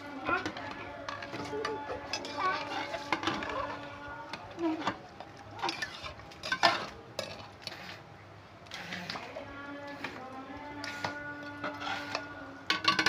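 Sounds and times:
metal ladle stirring rice in water: 5.6s - 8.0s.

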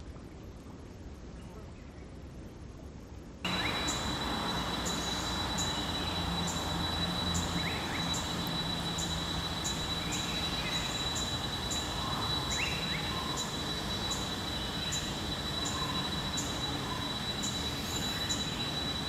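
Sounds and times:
high-pitched insect drone: 3.5s - 19.0s
insect chirping: 3.5s - 19.0s
small birds chirping: 3.5s - 19.0s.

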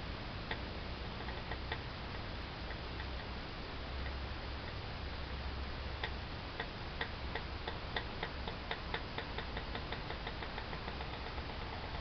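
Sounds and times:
low steady hum: 0.0s - 12.0s
mechanical ticking: 6.0s - 12.0s.

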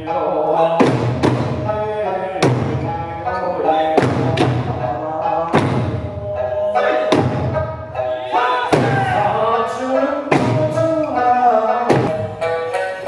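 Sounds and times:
folk melody singing: 0.0s - 13.0s
hand drums beating in unison: 0.8s - 1.8s, 2.4s - 3.0s, 3.9s - 8.1s, 8.7s - 9.4s, 10.3s - 10.9s, 11.8s - 12.6s.

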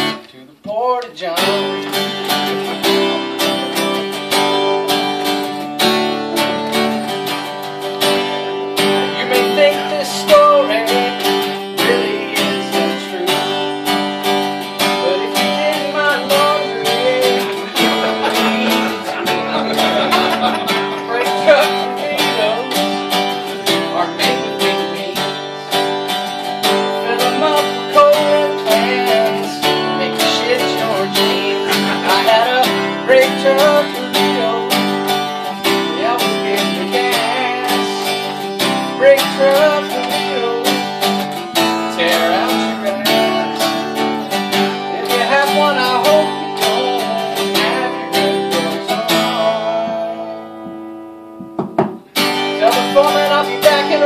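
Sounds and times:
acoustic guitar strumming: 0.0s - 54.0s.

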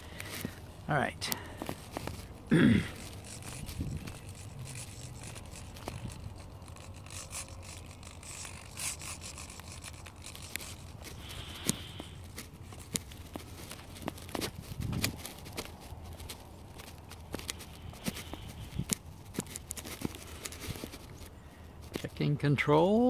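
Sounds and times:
steady low rumble: 0.0s - 22.2s
camera handling rubbing and scraping: 0.0s - 22.3s.

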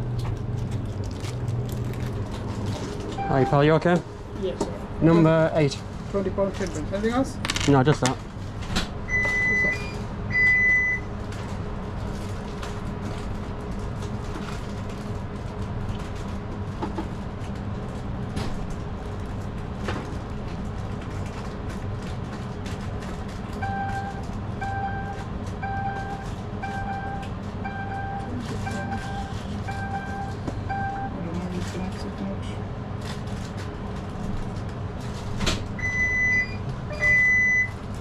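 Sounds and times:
low background rumble: 0.0s - 7.6s
electronic device beeping: 23.6s - 31.1s, 35.8s - 37.7s.

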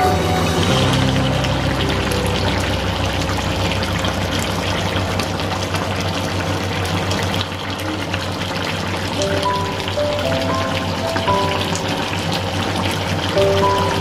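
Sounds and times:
background music: 0.0s - 3.9s, 9.2s - 14.0s
stew bubbling and popping: 0.7s - 14.0s.

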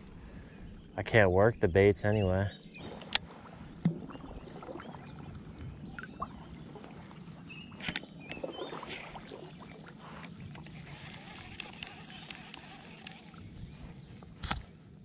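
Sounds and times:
shallow water sloshing: 2.8s - 14.7s
fishing reel clicks: 10.9s - 13.3s.

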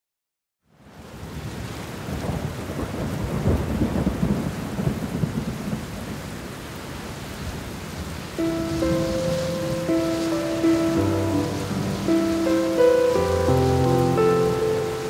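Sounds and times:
rain hiss: 0.8s - 15.0s
low rumble of thunder: 2.1s - 6.2s.

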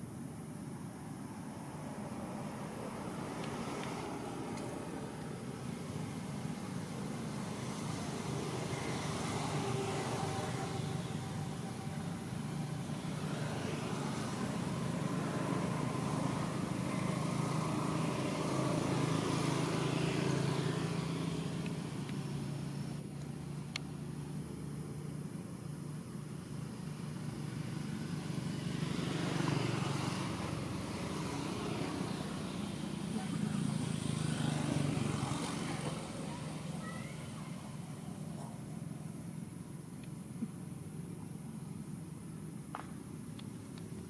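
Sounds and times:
motor engines droning: 1.6s - 44.0s.

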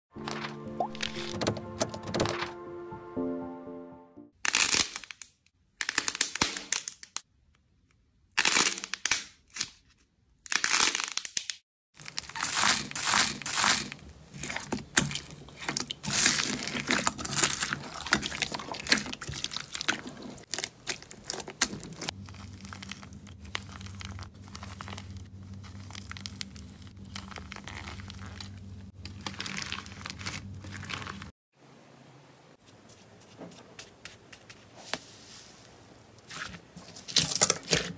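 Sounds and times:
slime crackling: 12.0s - 31.3s
steady low hum: 21.9s - 31.2s.

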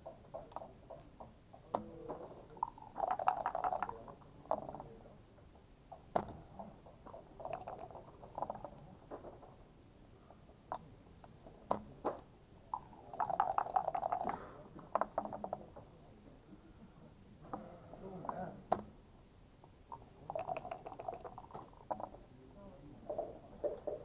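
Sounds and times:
checkers and dice clacking: 23.1s - 24.0s.

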